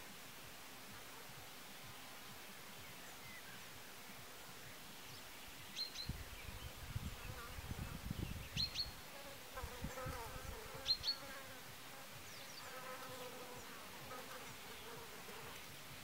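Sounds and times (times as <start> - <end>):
insect buzzing: 3.6 - 16.0.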